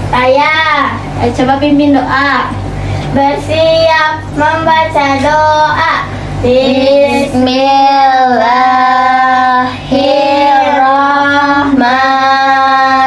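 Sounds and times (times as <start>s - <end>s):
children singing in unison: 6.5s - 13.0s.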